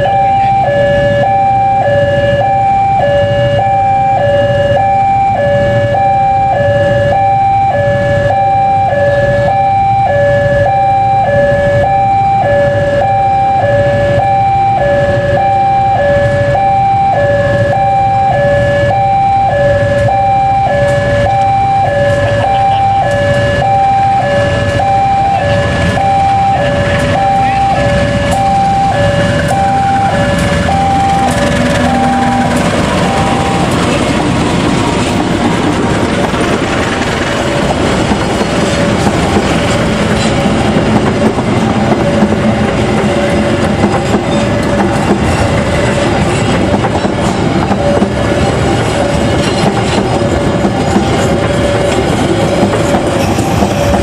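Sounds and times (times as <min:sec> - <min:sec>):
two-tone crossing alarm chime: 0:00.0 - 0:35.3, 0:38.5 - 0:54.0
diesel locomotive rumble: 0:00.0 - 0:54.0
train wheels clicking on rails: 0:19.7 - 0:54.0.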